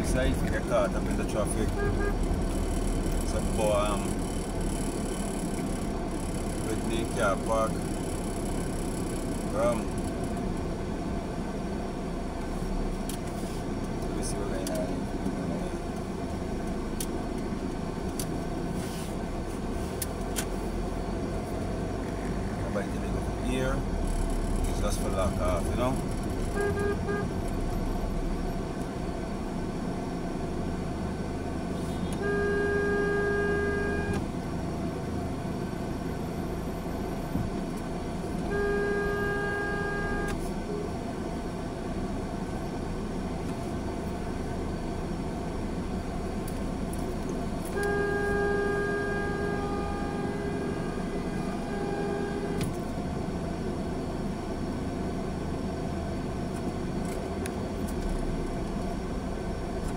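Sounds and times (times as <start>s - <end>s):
car engine and road rumble: 0.0s - 59.9s
vehicle horn tooting: 1.4s - 4.3s, 25.4s - 27.4s, 31.8s - 34.2s, 38.4s - 40.5s, 47.6s - 52.7s.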